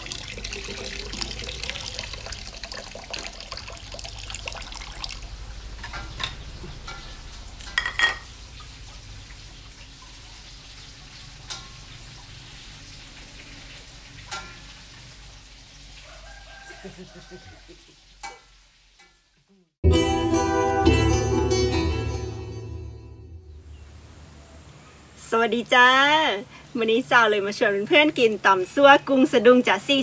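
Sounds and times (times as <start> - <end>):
water running: 0.0 - 19.0
knocks and clinks: 7.7 - 8.3.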